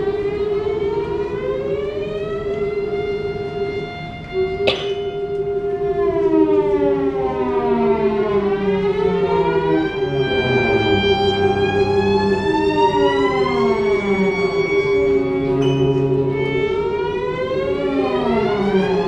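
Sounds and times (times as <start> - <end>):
chamber music ensemble: 0.0 - 19.0
sharp struck attack: 4.7 - 5.6
sliding glissandi: 4.7 - 5.8.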